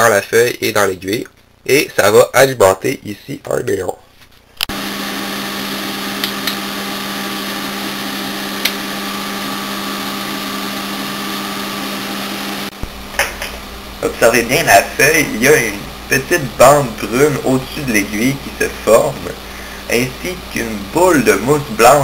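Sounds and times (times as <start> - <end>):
power supply buzzing with hiss: 12.0 - 22.0.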